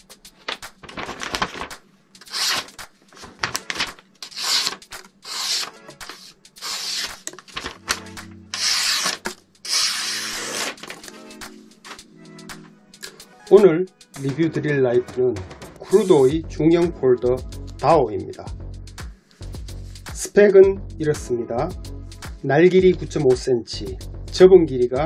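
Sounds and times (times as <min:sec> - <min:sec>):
paper rustling: 0:00.4 - 0:12.1
knife slicing paper: 0:00.5 - 0:11.2.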